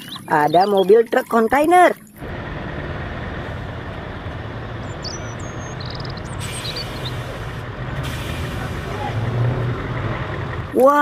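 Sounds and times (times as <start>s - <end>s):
road noise: 0.0s - 11.0s
truck diesel engine driving past: 2.2s - 10.8s.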